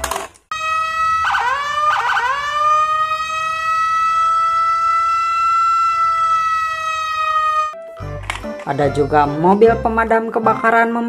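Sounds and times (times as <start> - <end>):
electronic police siren: 0.5 - 7.9.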